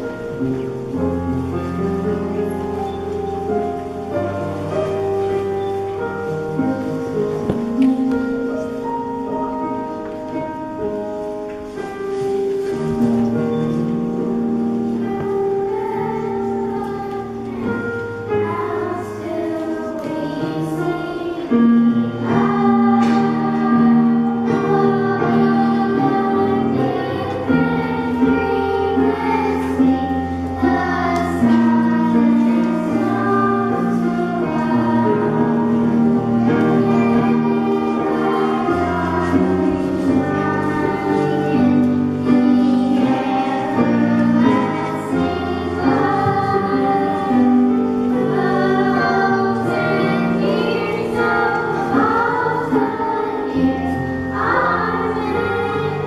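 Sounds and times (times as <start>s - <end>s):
church choir singing long notes: 0.0s - 56.0s.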